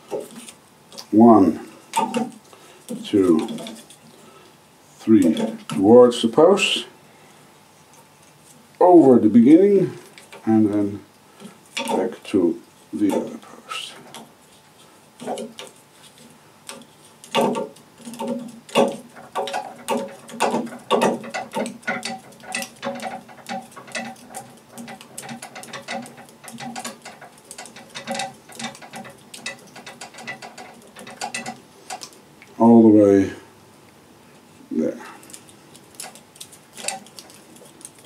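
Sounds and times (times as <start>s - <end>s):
serving tool clicks and rattles: 16.7s - 32.2s, 35.2s - 38.0s.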